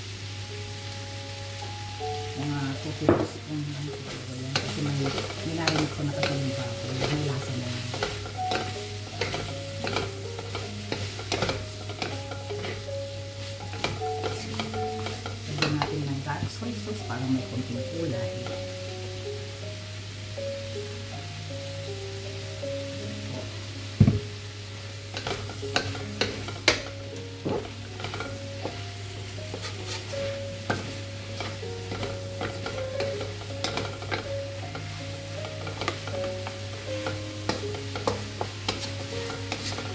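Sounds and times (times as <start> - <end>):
vegetables sizzling in oil: 0.0 - 39.9
metal spatula scraping a pan: 3.9 - 16.0, 25.1 - 39.9.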